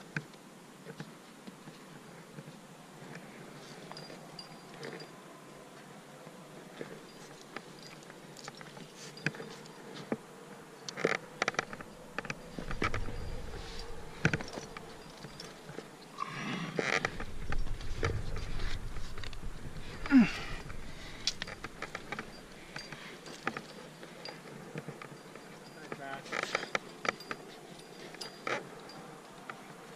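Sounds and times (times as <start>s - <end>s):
climbing gear clicks and clinks: 0.8s - 29.9s
low rumble: 17.0s - 22.5s.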